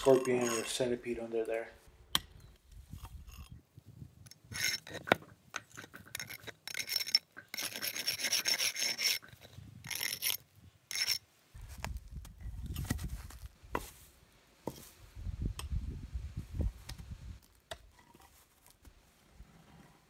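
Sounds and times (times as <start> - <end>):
pick scraping soil and grit: 0.0 - 1.3, 4.3 - 11.9.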